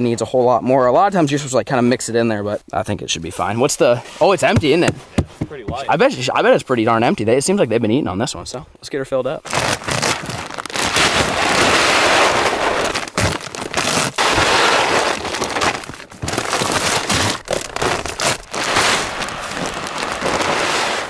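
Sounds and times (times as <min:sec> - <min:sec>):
bag crinkling: 0:09.4 - 0:21.0.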